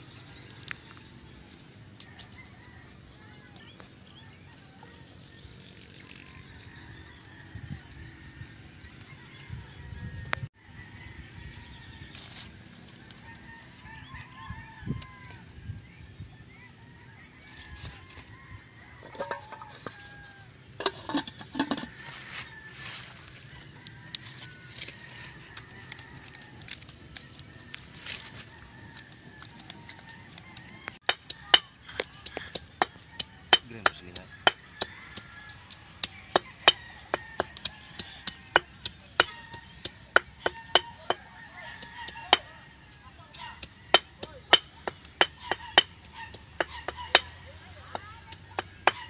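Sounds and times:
metal lid clanking on pot: 19.0s - 20.0s, 20.8s - 21.9s.

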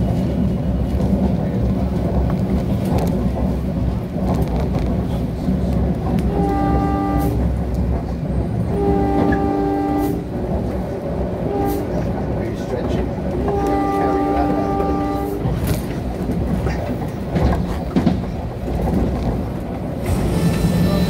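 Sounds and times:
train running rumble: 0.0s - 21.0s
multi-tone train horn: 6.2s - 7.6s, 8.7s - 10.3s, 11.4s - 12.2s, 13.4s - 15.7s.

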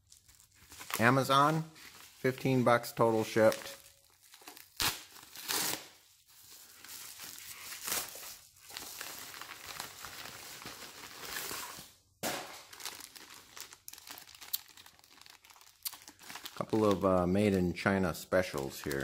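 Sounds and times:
plastic bags crinkling: 0.0s - 19.0s
paper mailer tearing and crumpling: 3.2s - 6.0s.

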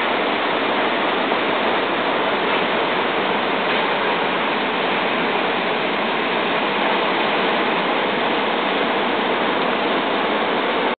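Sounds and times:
waves breaking: 0.0s - 11.0s.

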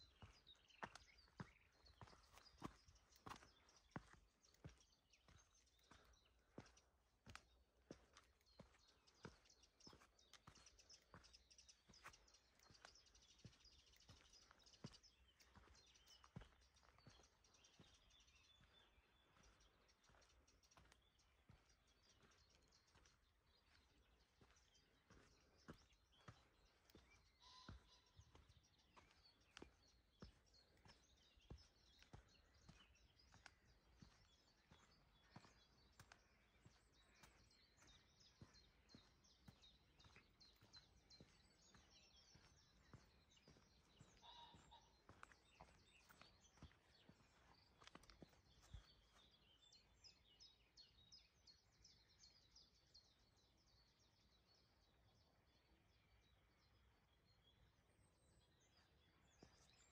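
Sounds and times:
footsteps walking: 0.0s - 49.3s
faint birdsong chirps: 0.0s - 59.9s.

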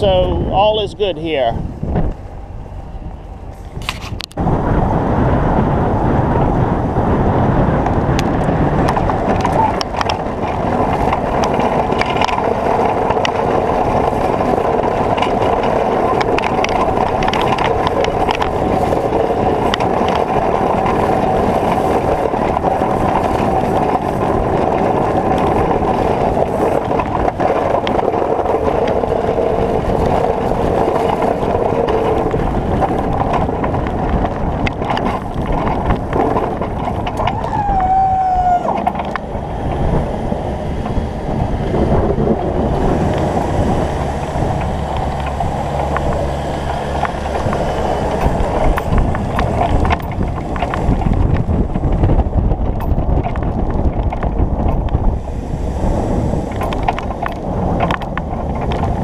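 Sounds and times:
vehicle engine running: 0.0s - 59.0s
wind noise on microphone: 0.0s - 59.0s.

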